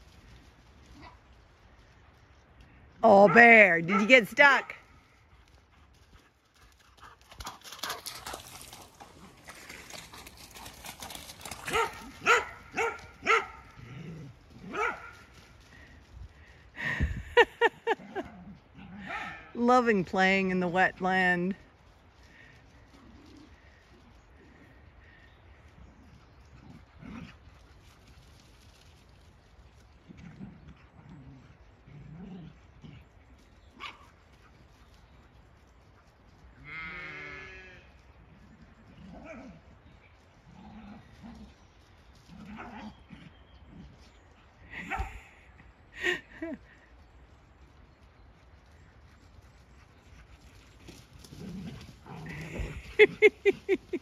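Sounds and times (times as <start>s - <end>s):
dog barking: 3.3s - 4.1s, 11.7s - 13.6s, 14.7s - 15.1s.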